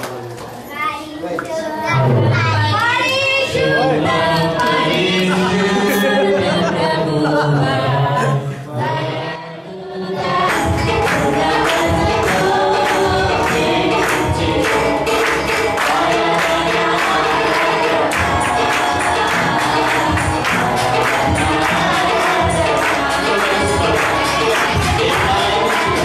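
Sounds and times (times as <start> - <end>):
congregation singing: 0.0 - 26.0
percussive beat: 10.3 - 26.0.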